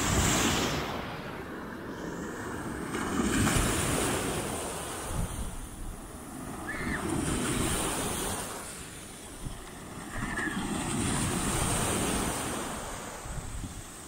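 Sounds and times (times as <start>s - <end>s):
waves breaking on sandy beach: 0.0s - 14.0s
wind on microphone: 0.0s - 14.0s.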